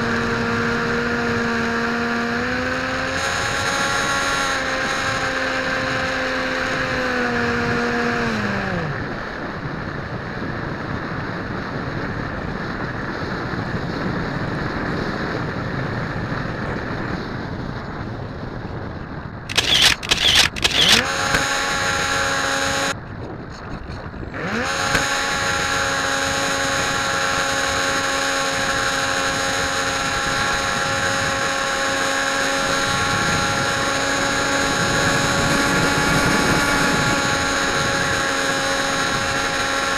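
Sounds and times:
loud sudden bursts: 19.5s - 21.0s
electric motor whine: 19.5s - 22.1s.

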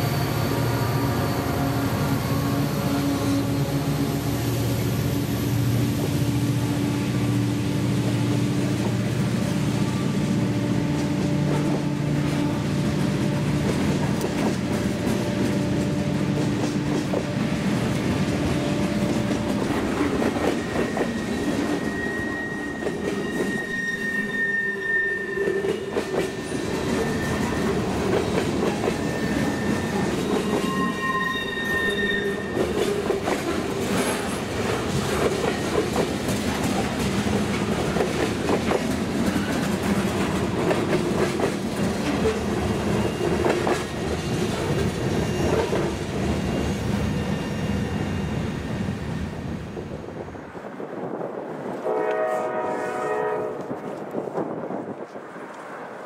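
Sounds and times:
freight train rumbling past: 0.0s - 56.0s
high wheel squeal: 20.4s - 32.8s, 44.7s - 49.1s
wheels clattering on rails: 32.4s - 48.4s.

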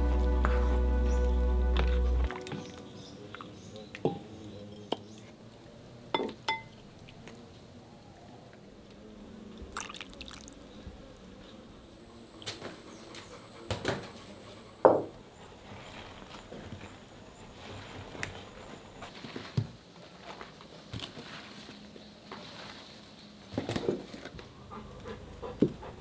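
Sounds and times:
gravy pouring: 9.7s - 10.7s.

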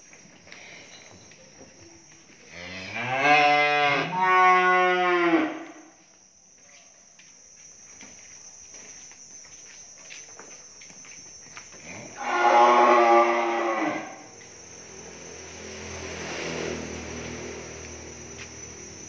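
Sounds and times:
cow mooing: 2.6s - 5.7s, 12.2s - 14.2s.

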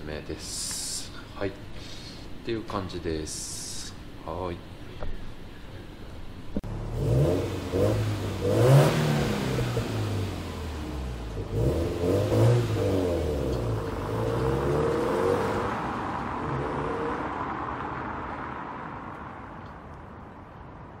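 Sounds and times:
car engine revving: 6.6s - 19.2s.

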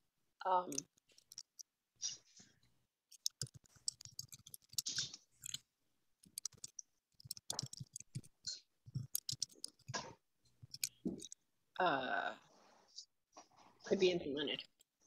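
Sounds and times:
keyboard key clicks: 9.0s - 10.0s.

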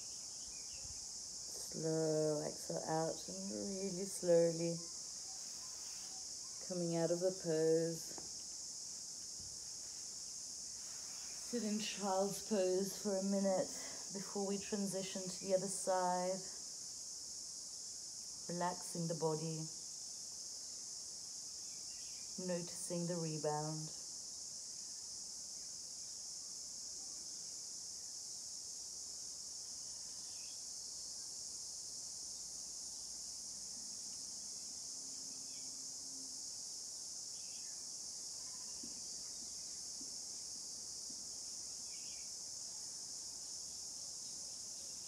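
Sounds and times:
insect chorus drone: 0.0s - 45.0s
faint chirps: 4.8s - 6.8s.

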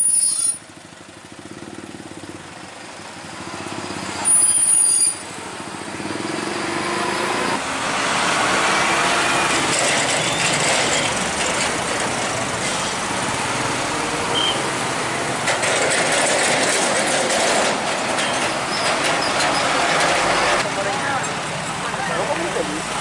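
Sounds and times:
high-pitched squeal: 0.0s - 0.6s, 4.2s - 5.3s
truck and car engines in traffic: 0.0s - 23.0s.

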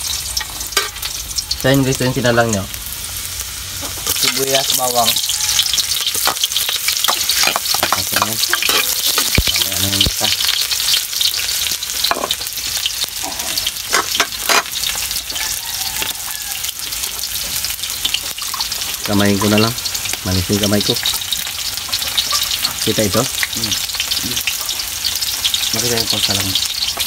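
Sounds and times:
onion and garlic sizzling in oil: 0.0s - 27.0s.

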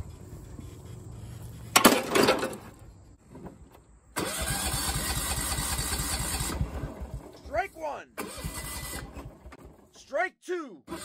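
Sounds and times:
mower engine cranking on starter: 1.7s - 10.0s.

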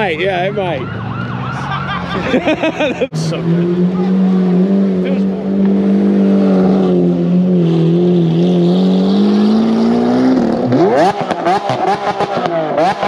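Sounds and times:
sports car engine revving: 2.6s - 13.0s.

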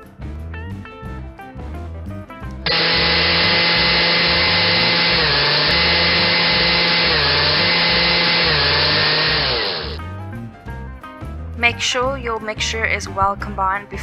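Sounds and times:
electric hand mixer whining: 2.7s - 10.0s.

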